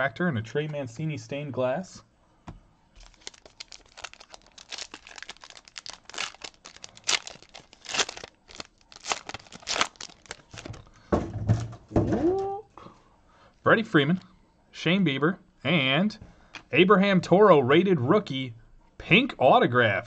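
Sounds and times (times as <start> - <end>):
foil wrapper tearing and crinkling: 3.0 - 10.8.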